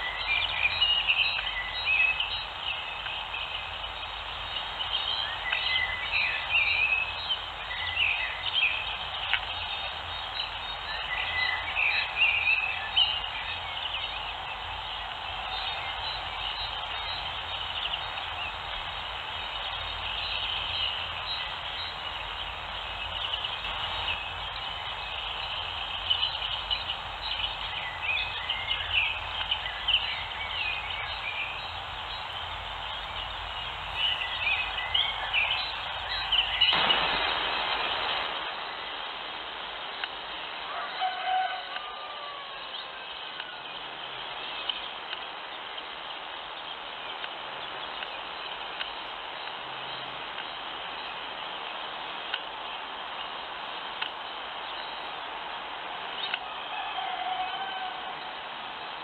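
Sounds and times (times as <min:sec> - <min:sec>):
low hum: 0:00.0 - 0:38.8
small birds chirping: 0:00.0 - 0:39.0
steady hiss: 0:00.0 - 0:41.0, 0:41.6 - 0:56.8.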